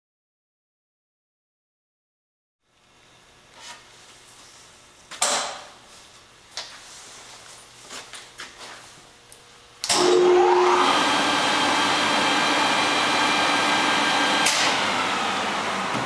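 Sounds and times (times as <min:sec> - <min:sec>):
lathe whirring up: 0:09.8 - 0:16.0.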